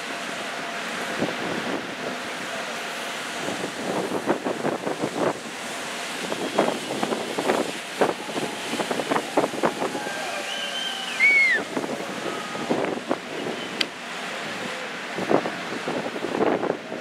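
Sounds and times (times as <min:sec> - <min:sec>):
churning sea water: 0:00.0 - 0:17.0
wind buffeting microphone: 0:03.4 - 0:17.0
high whistle-like tone: 0:10.2 - 0:11.7.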